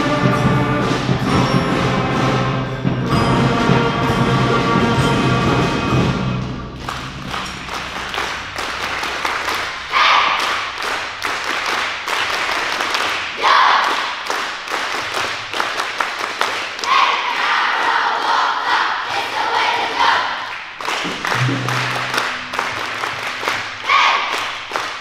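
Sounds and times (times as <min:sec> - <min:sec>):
concert band playing: 0:00.0 - 0:09.6, 0:21.1 - 0:23.8
scattered clapping: 0:06.8 - 0:19.2, 0:19.9 - 0:25.0.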